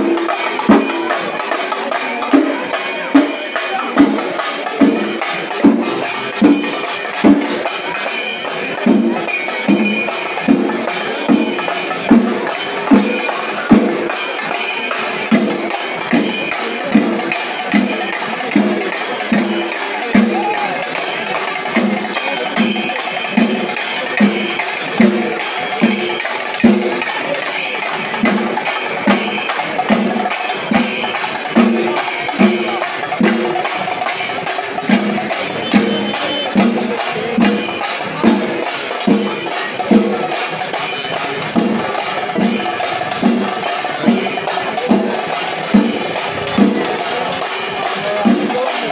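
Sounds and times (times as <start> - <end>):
drums beating steady pulse: 0.0 - 48.9
hand cymbals clashing: 0.0 - 48.9.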